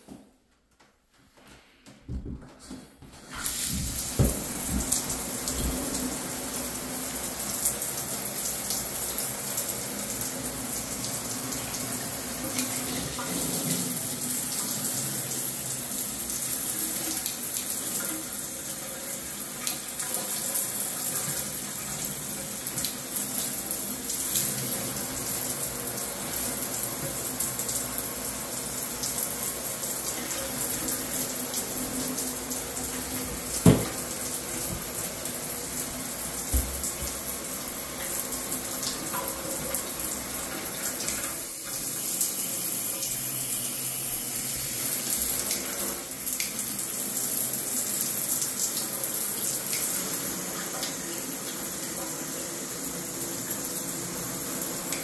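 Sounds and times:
soft thump: 0:33.6 - 0:34.0.

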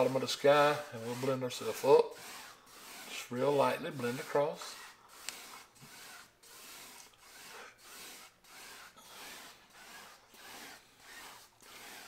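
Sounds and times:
brush swishing on canvas: 0:00.0 - 0:12.0.

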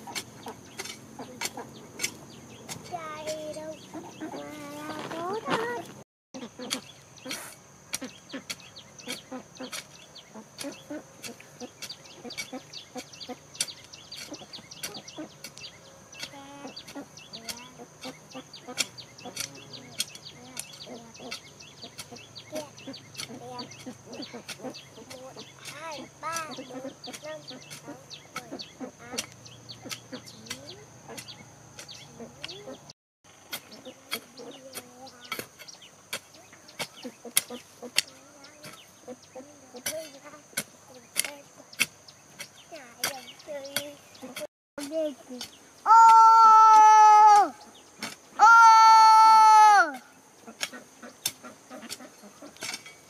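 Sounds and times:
sharp irregular clicks and knocks: 0:00.0 - 0:03.6, 0:10.6 - 0:32.6, 0:39.8 - 0:45.6, 0:50.5 - 0:53.0
chickens clucking: 0:00.0 - 0:45.7, 0:50.0 - 0:53.0.

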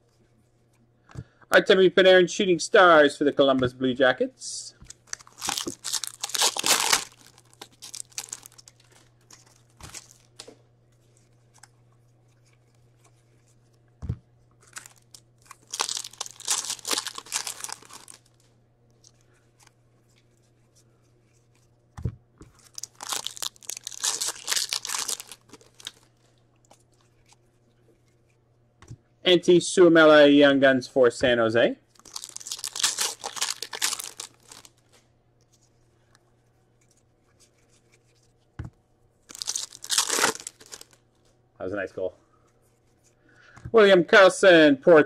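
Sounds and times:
foil packs tearing and crinkling: 0:04.9 - 0:10.4, 0:14.6 - 0:18.3, 0:22.6 - 0:26.1, 0:32.0 - 0:34.8, 0:39.3 - 0:41.0.

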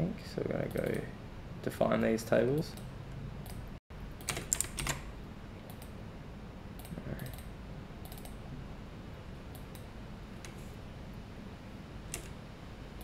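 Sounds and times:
computer keyboard typing: 0:04.2 - 0:05.1, 0:12.1 - 0:12.4.

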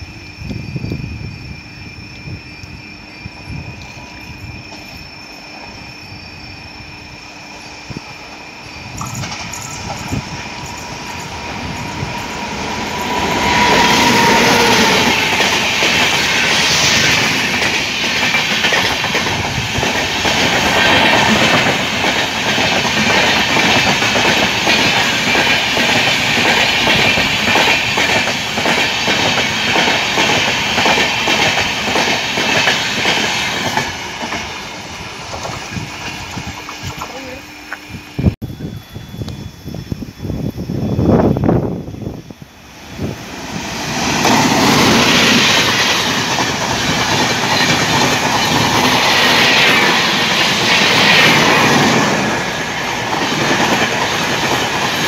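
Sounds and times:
diesel train passing at speed: 0:00.0 - 0:55.0
coaches clattering over rail joints: 0:08.9 - 0:16.3.

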